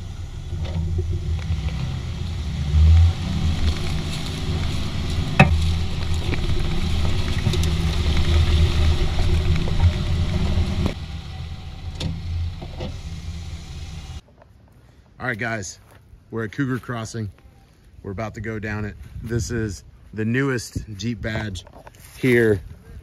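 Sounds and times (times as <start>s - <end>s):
low engine rumble: 0.0s - 14.2s
tyres crunching gravel: 0.0s - 22.9s.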